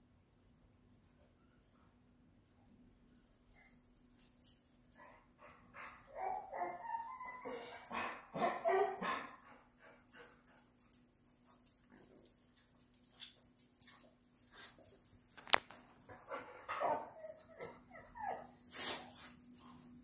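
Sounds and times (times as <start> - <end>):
dog whining barks and yips: 5.8 - 9.3, 16.2 - 20.0.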